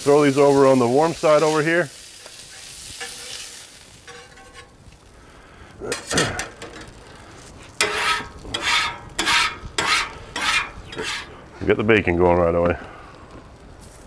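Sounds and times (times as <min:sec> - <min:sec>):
sausage patties sizzling on griddle: 0:00.0 - 0:14.0
metal spatula scraping griddle: 0:02.2 - 0:04.8, 0:05.9 - 0:07.0, 0:07.8 - 0:11.4.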